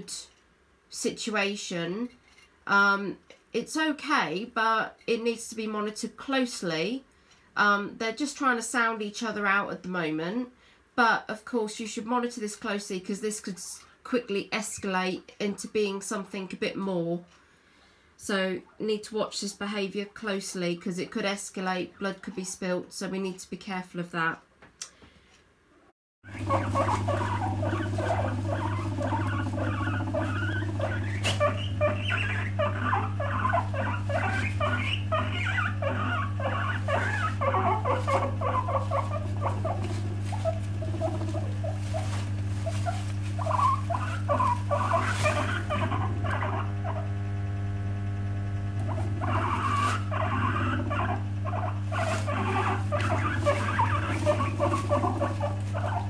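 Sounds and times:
low electrical hum: 0:00.0 - 0:56.0
guinea pigs chattering: 0:26.3 - 0:47.0, 0:48.9 - 0:56.0.

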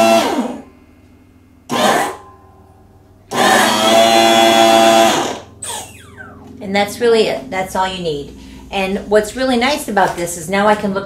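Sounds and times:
hydraulic pump motor running: 0:01.7 - 0:02.2, 0:03.3 - 0:06.8.

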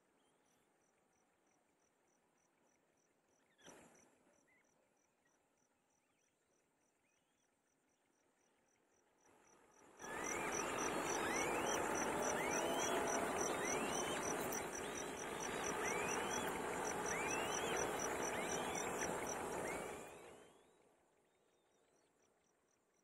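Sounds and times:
rising whistled bird call: 0:10.0 - 0:20.1.

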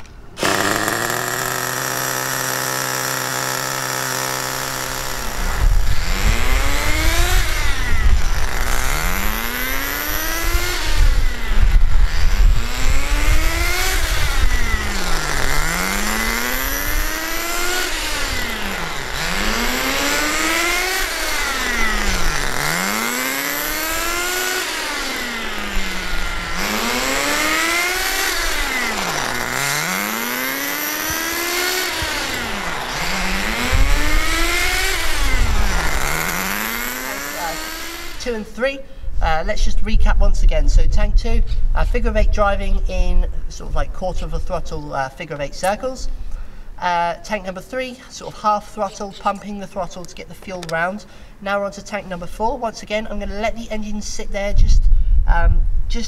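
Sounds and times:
nitro engine revving: 0:00.0 - 0:38.6.

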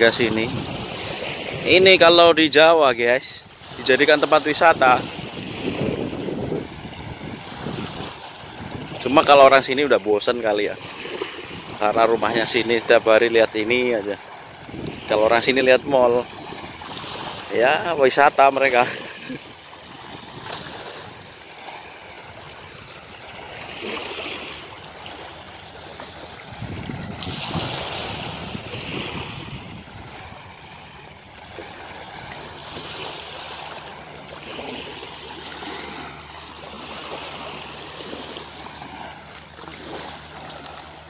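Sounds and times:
small waves washing on shore: 0:00.0 - 0:41.0.

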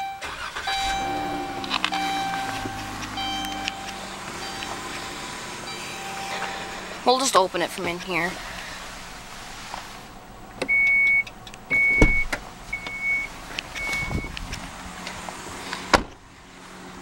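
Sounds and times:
liftgate warning chime beeping: 0:00.0 - 0:07.7, 0:10.6 - 0:14.4
steady low hum: 0:00.6 - 0:14.4.

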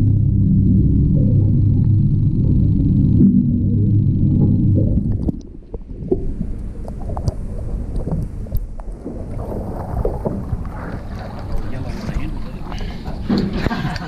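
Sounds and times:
underwater rumble: 0:00.0 - 0:14.0
water lapping and splashing: 0:04.4 - 0:14.0.

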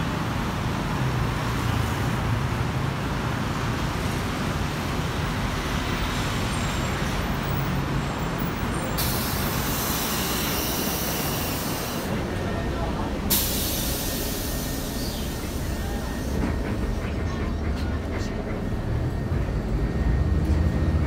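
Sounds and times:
bus engine running low: 0:00.0 - 0:21.0
compressed air hiss: 0:13.3 - 0:15.3.

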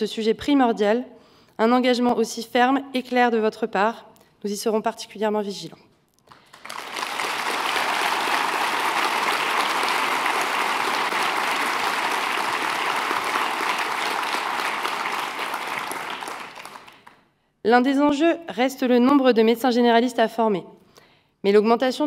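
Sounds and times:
audience applauding: 0:06.3 - 0:17.2.

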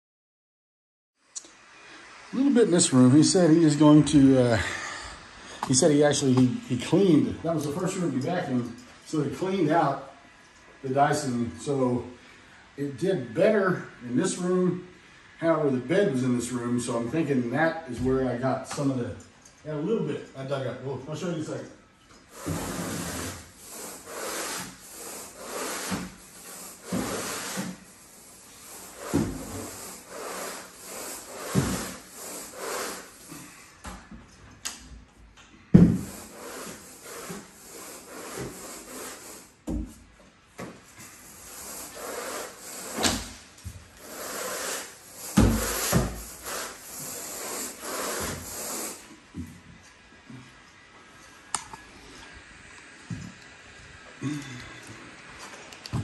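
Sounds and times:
carpet rake rubbing through carpet: 0:22.3 - 0:33.3, 0:36.0 - 0:39.5, 0:41.1 - 0:43.2, 0:44.0 - 0:49.1.

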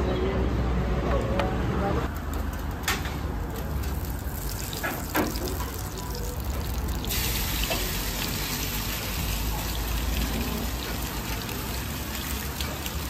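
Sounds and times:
meat sizzling on hot metal: 0:03.6 - 0:13.0.

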